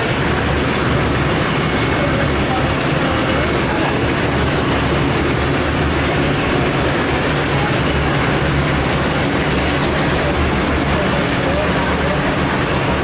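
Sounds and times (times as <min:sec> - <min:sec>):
busy street market ambience: 0:00.0 - 0:13.0.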